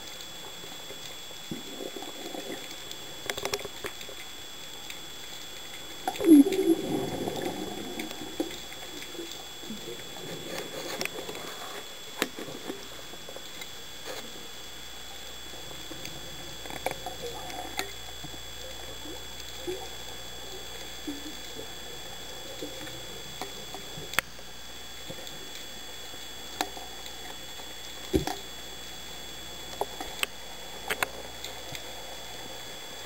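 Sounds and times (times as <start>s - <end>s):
faint steady whine: 0.0s - 33.0s
underwater hiss: 6.0s - 14.5s.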